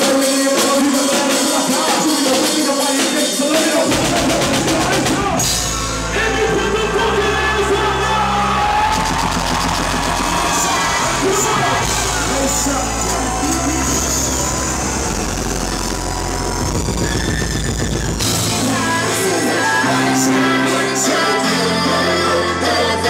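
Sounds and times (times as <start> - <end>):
rapping over a beat: 0.0 - 5.3
heavy bass: 3.6 - 23.0.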